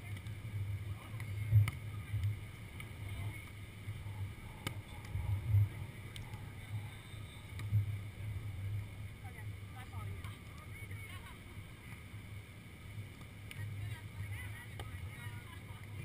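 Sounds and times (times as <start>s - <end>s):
wind buffeting microphone: 0.0s - 11.8s
faint clicks: 4.5s - 6.7s, 7.4s - 8.0s, 10.2s - 11.2s, 13.1s - 16.0s.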